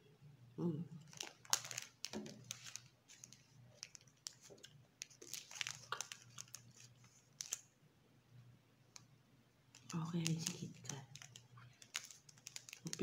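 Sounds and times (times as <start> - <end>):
wrapper crinkling: 1.0 - 7.7, 9.7 - 13.0.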